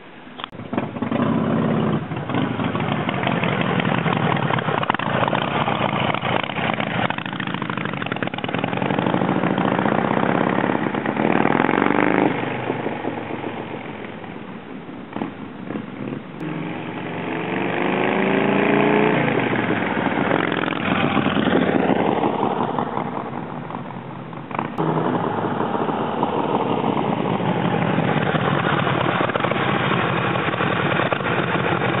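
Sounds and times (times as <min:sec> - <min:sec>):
motorcycle engine running steadily: 0:00.4 - 0:11.6, 0:19.2 - 0:32.0
motorcycle riding past: 0:00.6 - 0:14.2, 0:15.1 - 0:32.0.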